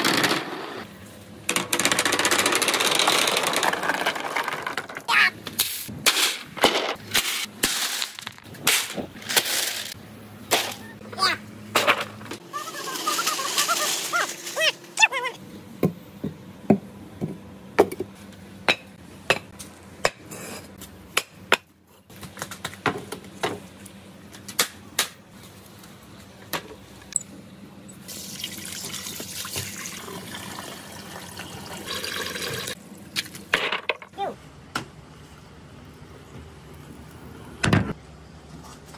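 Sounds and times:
hard objects clacking and knocking: 1.5 - 5.2.

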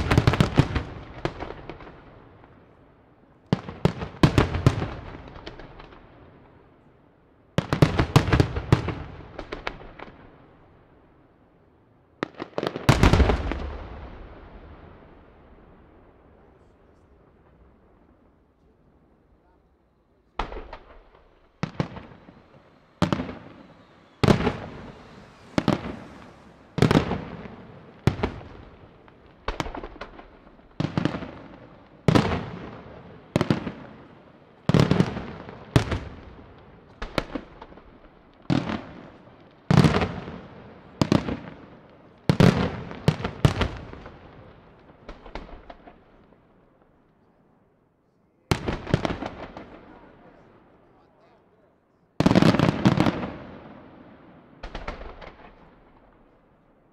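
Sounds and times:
firework shells bursting with echo: 20.2 - 40.3, 52.2 - 56.8.

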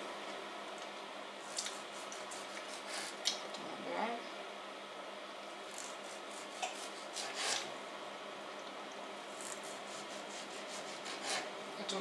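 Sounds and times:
knife slicing tomato on cutting board: 5.7 - 7.7, 9.4 - 11.5.

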